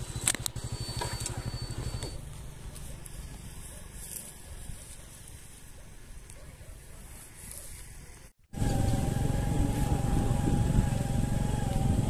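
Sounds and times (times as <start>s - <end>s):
motorcycle engine rumble: 0.0s - 12.0s
wavering whine: 8.5s - 12.0s
wind noise: 8.5s - 12.0s.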